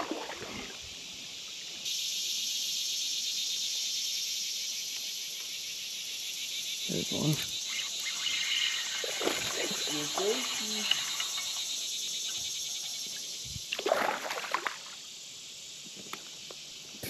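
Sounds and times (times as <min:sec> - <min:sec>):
water splashing: 0:00.0 - 0:00.8, 0:07.1 - 0:11.8, 0:13.7 - 0:15.0
insects chirring: 0:00.0 - 0:17.0.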